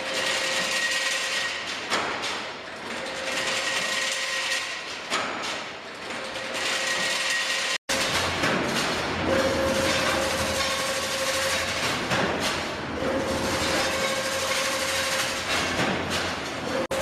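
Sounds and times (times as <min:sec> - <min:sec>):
machine hum and whine: 0:05.8 - 0:17.0.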